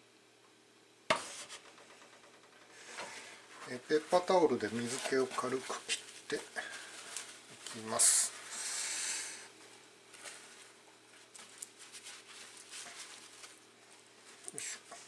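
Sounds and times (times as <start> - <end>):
paper towels rustling: 2.8 - 9.1, 10.1 - 15.0.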